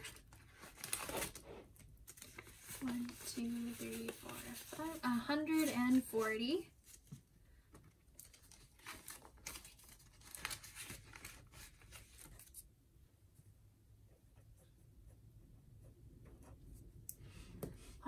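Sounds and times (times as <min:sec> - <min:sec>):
banknotes rustling: 0:00.0 - 0:07.2, 0:08.2 - 0:12.6
plastic sleeve crinkling: 0:08.1 - 0:12.6.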